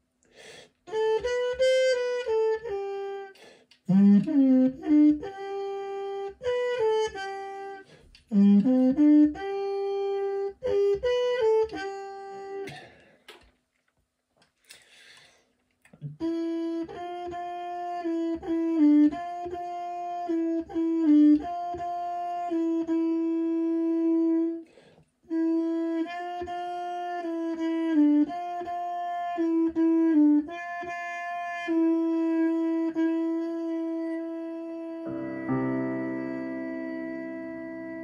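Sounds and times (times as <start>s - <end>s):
trumpet playing low notes: 29.3s - 38.0s.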